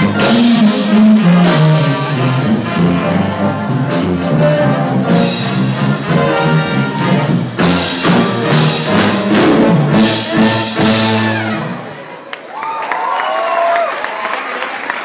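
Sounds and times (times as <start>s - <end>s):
percussion keeping the beat: 0.0s - 11.6s
saxophone: 0.0s - 11.9s
trumpets: 0.0s - 12.0s.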